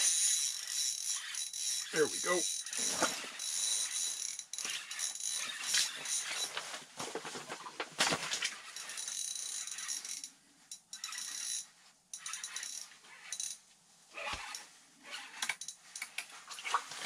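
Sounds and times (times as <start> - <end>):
fishing reel whirring: 0.0 - 6.6, 8.4 - 13.6, 14.2 - 16.8
nylon clothing rustling: 2.8 - 3.4, 4.8 - 8.7, 13.9 - 17.0.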